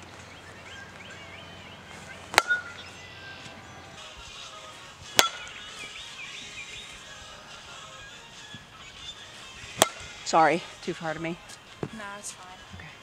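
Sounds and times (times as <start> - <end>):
birds chirping faintly: 0.0 - 11.8
bat hitting softball: 2.3 - 3.5, 5.1 - 5.6, 9.7 - 10.3.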